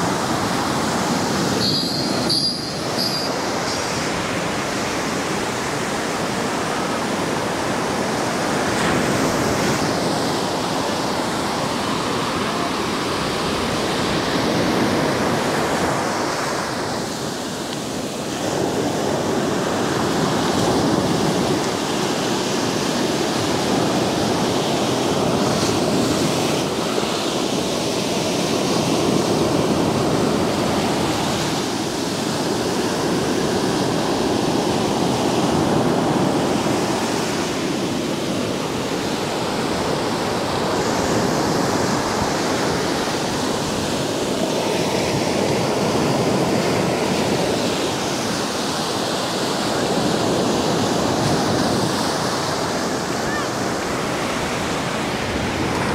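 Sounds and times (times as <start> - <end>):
foamy wash over wet sand: 0.0 - 55.9
waves breaking: 0.0 - 55.9.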